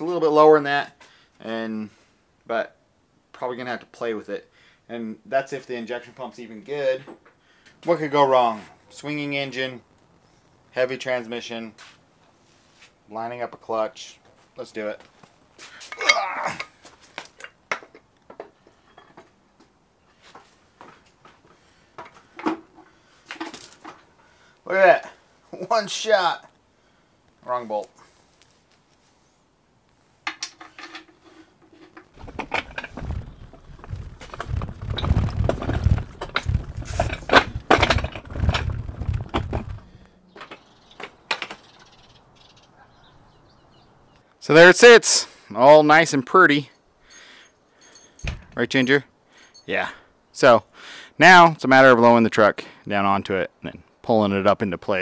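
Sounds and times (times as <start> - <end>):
metal parts clinking: 30.3 - 41.8, 47.1 - 49.7
heavy metal knocks and clatter: 32.2 - 39.9
low rumble: 32.2 - 40.2.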